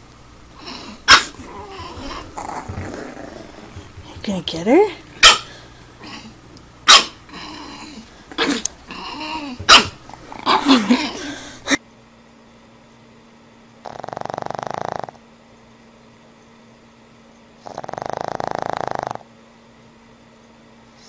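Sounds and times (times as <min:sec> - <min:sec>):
puppy yipping and growling: 0:00.6 - 0:03.8, 0:05.2 - 0:11.1
dog snoring: 0:00.6 - 0:03.9, 0:13.8 - 0:15.2, 0:17.6 - 0:19.3.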